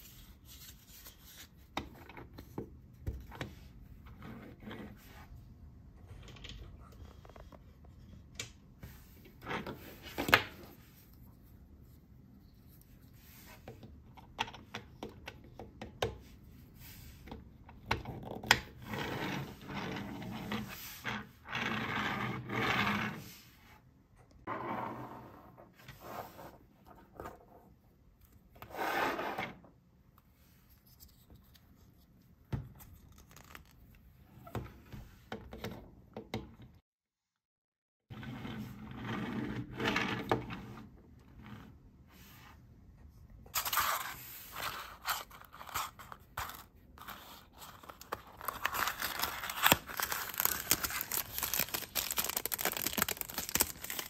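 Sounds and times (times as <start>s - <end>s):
plastic toy scraping on table: 18.8s - 23.4s, 24.5s - 26.6s, 38.1s - 40.8s.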